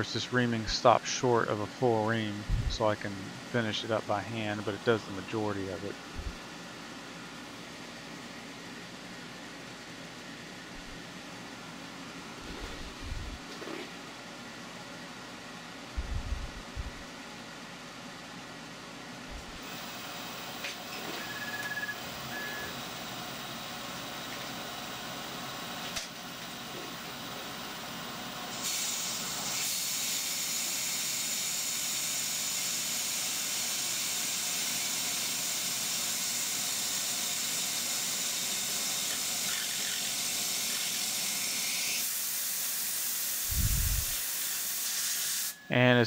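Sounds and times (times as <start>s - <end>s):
milling machine spindle turning: 38.6s - 41.2s
spray nozzle hissing: 43.4s - 44.2s.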